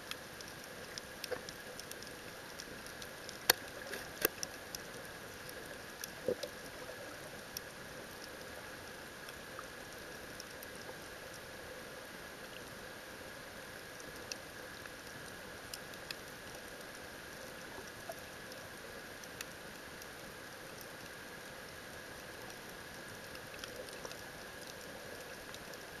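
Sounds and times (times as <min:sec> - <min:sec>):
sharp clicks and crackles: 0:00.0 - 0:08.4, 0:22.2 - 0:25.8
steady underwater hiss: 0:00.0 - 0:26.0.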